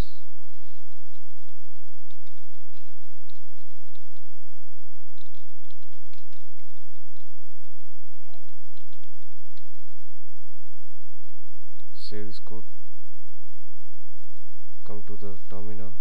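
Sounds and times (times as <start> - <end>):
keyboard typing: 0.8 - 4.3, 5.1 - 9.9.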